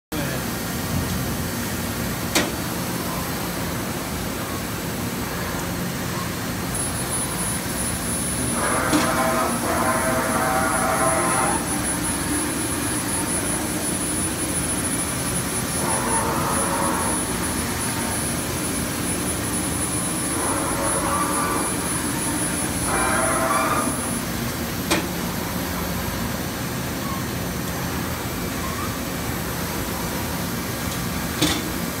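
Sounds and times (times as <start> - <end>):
thin high whine: 6.2 - 25.0
machine whirring: 6.3 - 32.0.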